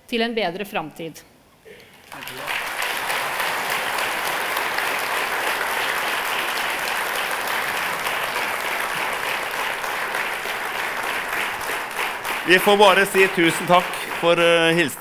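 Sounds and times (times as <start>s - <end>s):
audience applauding: 2.0s - 15.0s.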